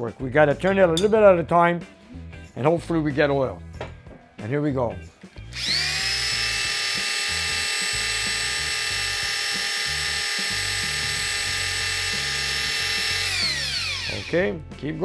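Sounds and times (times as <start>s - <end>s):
electric drill whining: 5.4s - 14.5s.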